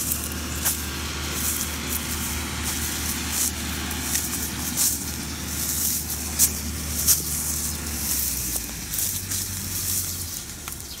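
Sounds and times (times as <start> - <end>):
dry crackles and rustles: 0.0 - 11.0
tractor engine running: 0.0 - 11.0.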